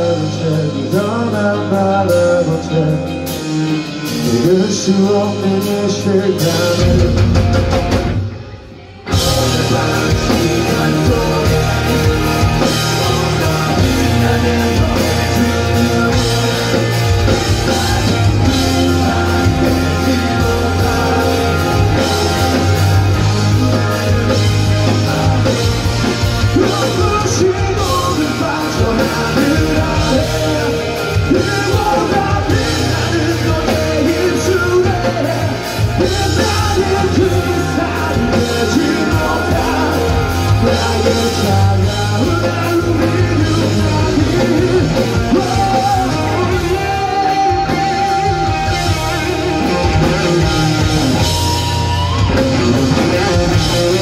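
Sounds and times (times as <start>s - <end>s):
live rock band playing: 0.0s - 54.0s
vocalist singing and shouting: 0.0s - 54.0s.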